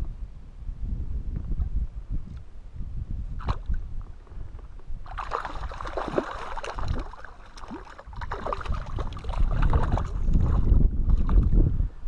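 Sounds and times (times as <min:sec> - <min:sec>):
fish splashing at water surface: 0:05.1 - 0:11.4.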